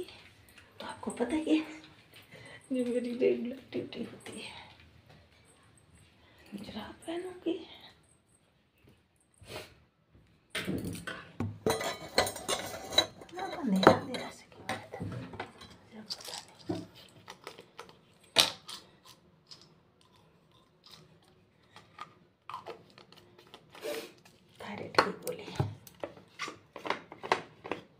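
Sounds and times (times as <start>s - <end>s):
small hard objects clinking and rattling: 15.8s - 19.8s.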